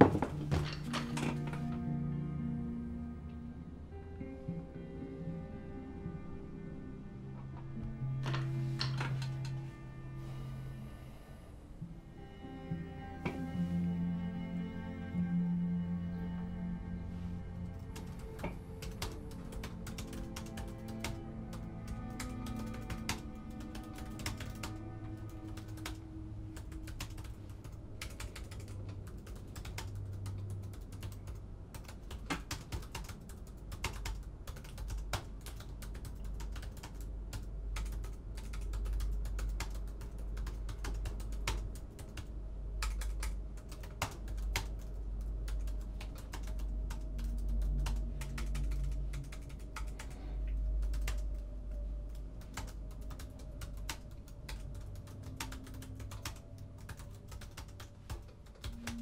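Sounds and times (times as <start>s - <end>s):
low steady hum: 0.0s - 59.0s
laptop keyboard typing: 17.8s - 51.4s, 52.1s - 59.0s.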